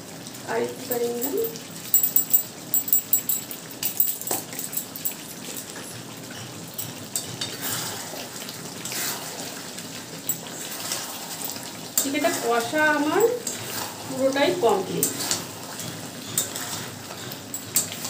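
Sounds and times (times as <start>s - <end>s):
curry bubbling and spitting: 5.2s - 12.8s.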